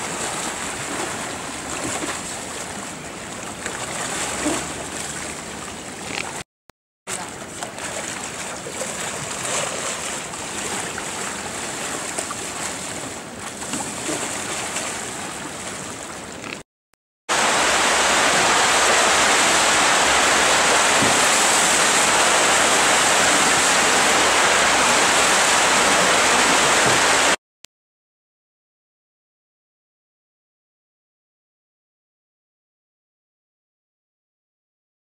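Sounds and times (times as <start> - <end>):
water around paddled kayak: 0.0 - 6.4, 7.1 - 16.6, 17.3 - 27.4
whitewater rushing: 0.0 - 6.4, 17.3 - 27.4.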